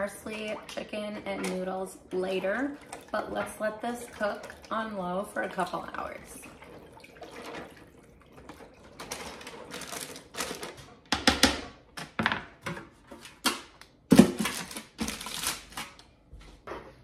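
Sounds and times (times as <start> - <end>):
aluminium foil crinkling: 9.0 - 10.8, 14.3 - 16.1.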